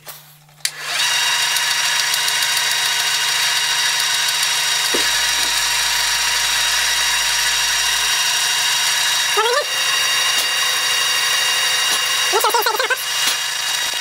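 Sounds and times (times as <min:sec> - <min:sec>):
milling machine spindle whine: 0:00.7 - 0:14.0
low hum: 0:04.8 - 0:11.8.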